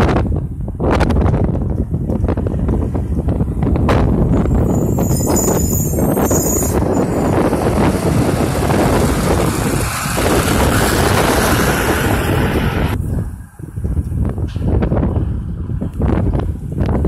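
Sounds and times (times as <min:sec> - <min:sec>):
garbage truck driving past: 0:06.8 - 0:13.0.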